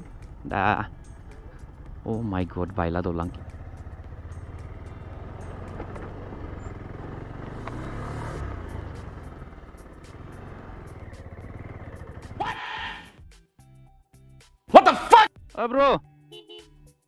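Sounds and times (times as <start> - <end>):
motorcycle engine at low revs: 0.0 - 12.5.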